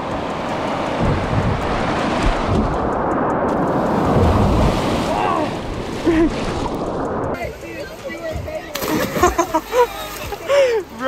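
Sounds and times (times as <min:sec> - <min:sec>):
wave breaking: 0:00.0 - 0:07.4
whitewater rushing and splashing: 0:00.0 - 0:11.0.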